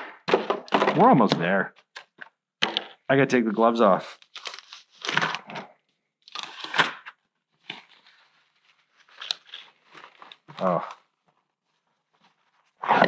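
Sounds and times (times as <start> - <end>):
gloves rustling being pulled off: 7.5 - 12.8.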